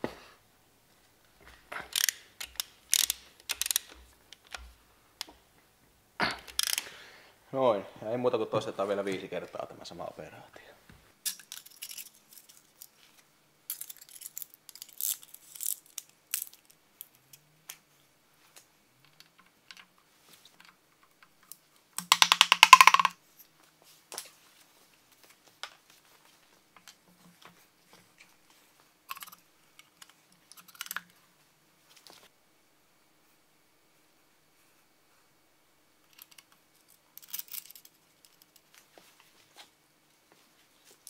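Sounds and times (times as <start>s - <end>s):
metal tool clicks and clinks: 1.9s - 4.7s
ratchet clicking: 1.9s - 4.7s, 6.5s - 6.8s.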